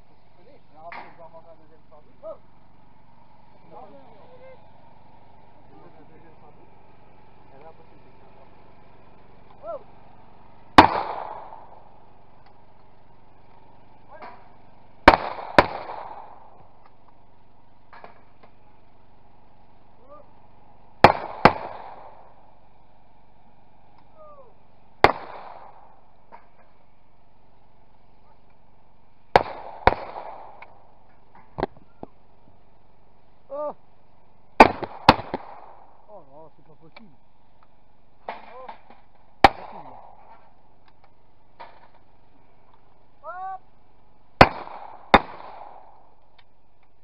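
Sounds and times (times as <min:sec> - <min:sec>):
shotgun shots: 0:10.7 - 0:12.0, 0:14.2 - 0:16.6, 0:21.0 - 0:22.4, 0:25.0 - 0:26.6, 0:29.3 - 0:30.8, 0:34.6 - 0:36.0, 0:38.2 - 0:40.5, 0:44.4 - 0:46.1
gunshot echo: 0:10.8 - 0:11.9, 0:14.2 - 0:16.6, 0:21.0 - 0:22.4, 0:25.0 - 0:26.7, 0:29.3 - 0:30.8, 0:34.6 - 0:36.0, 0:38.2 - 0:40.5, 0:44.4 - 0:46.0.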